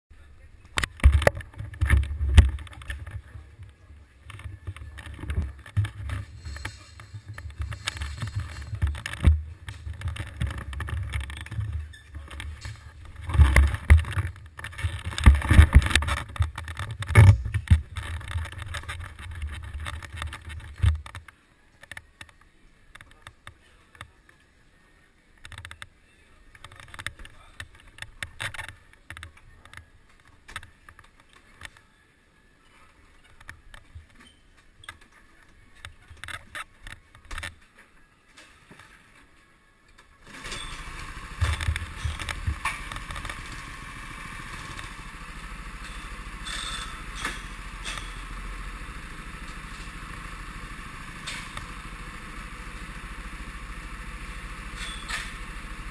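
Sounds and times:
faint scattered noises: 0:00.1 - 0:55.9
camera handling rumbles and knocks: 0:00.8 - 0:22.4, 0:41.3 - 0:43.8.

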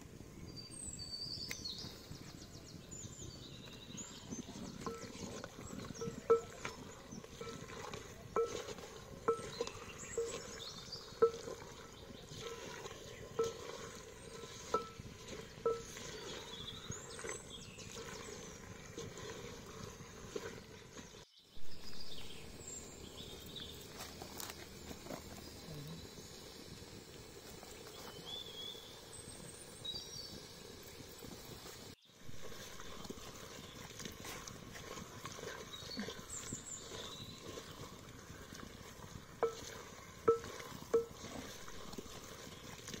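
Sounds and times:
birds chirping: 0:00.4 - 0:43.0
wooden spoon scraping a pot: 0:04.0 - 0:21.2, 0:32.3 - 0:43.0
spoon knocking on pot: 0:06.0 - 0:06.8, 0:08.4 - 0:10.4, 0:39.4 - 0:39.6, 0:40.3 - 0:41.2.

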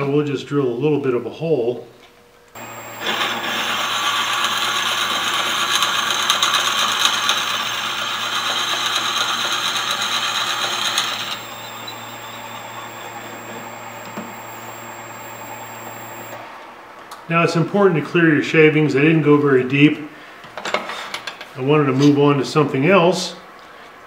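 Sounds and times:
drill bit scraping into wood: 0:02.6 - 0:16.4
lathe motor hum: 0:02.6 - 0:16.4.

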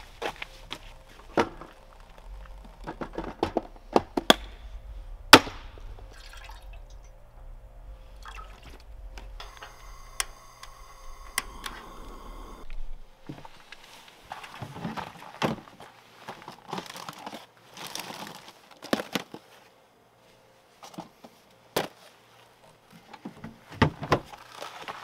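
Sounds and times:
water pouring into metal pot: 0:06.0 - 0:07.1, 0:08.2 - 0:08.8.

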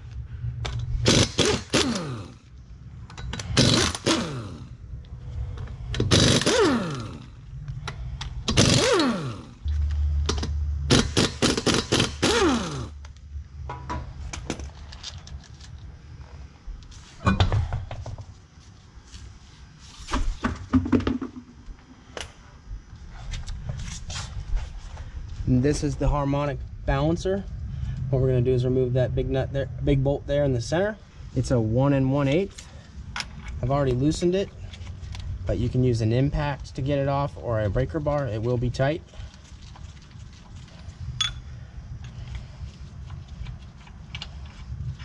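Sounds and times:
pneumatic impact wrench bursts: 0:01.0 - 0:02.5, 0:03.3 - 0:04.8, 0:05.9 - 0:07.4, 0:08.4 - 0:09.6, 0:10.9 - 0:13.0.

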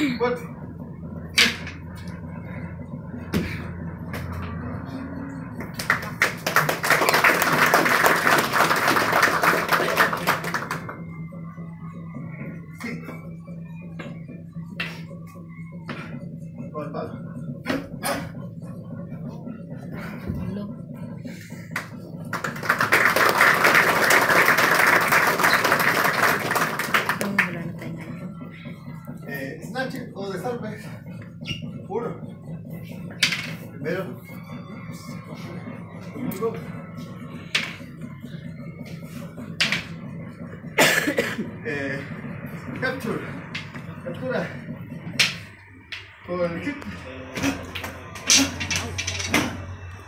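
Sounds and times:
audience applauding: 0:05.8 - 0:11.0, 0:21.8 - 0:27.6.

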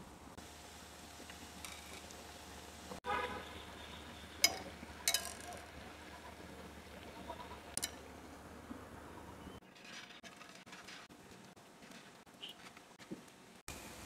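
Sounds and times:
faint steady background noise: 0:00.0 - 0:14.0
metal tongs clinking on pan: 0:04.4 - 0:05.6, 0:07.8 - 0:08.0.

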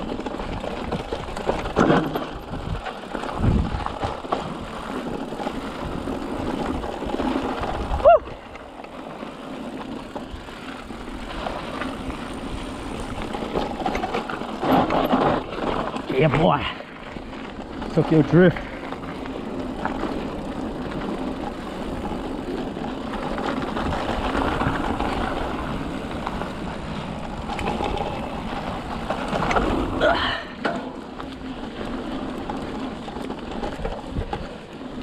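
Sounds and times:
bike tyres rattling over dirt: 0:00.0 - 0:35.0
wind on microphone: 0:02.4 - 0:04.1.

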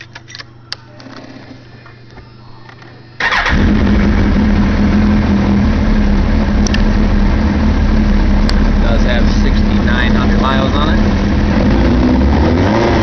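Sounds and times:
motorcycle engine starting and idling: 0:03.2 - 0:12.3.

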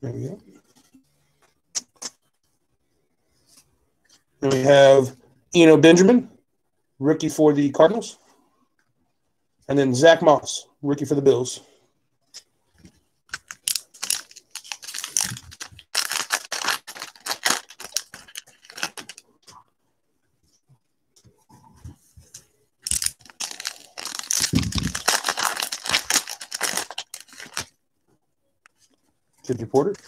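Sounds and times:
foil wrapper tearing and crinkling: 0:13.3 - 0:19.2, 0:22.8 - 0:27.7.

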